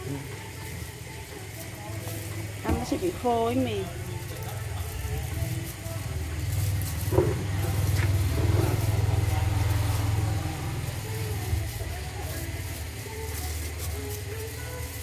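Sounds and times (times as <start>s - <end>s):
passing road traffic rumble: 1.0s - 15.0s.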